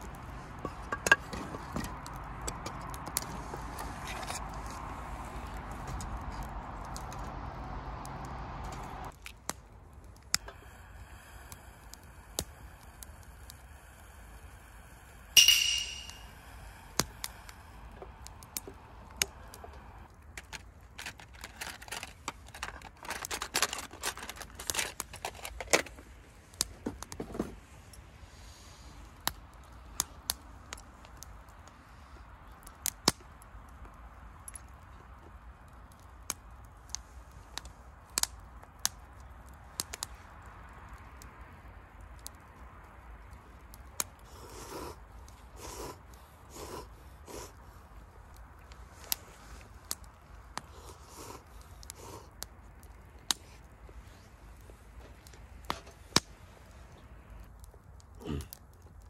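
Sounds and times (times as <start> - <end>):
campfire crackling and popping: 0.0 - 59.0
steady hiss: 9.8 - 20.1
metallic clink: 15.4 - 16.4
packet rustling: 20.4 - 25.8.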